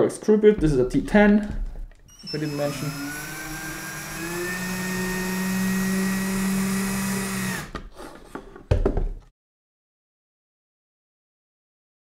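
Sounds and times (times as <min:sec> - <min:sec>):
knocks: 0:00.5 - 0:02.0
cordless drill running: 0:02.1 - 0:07.8.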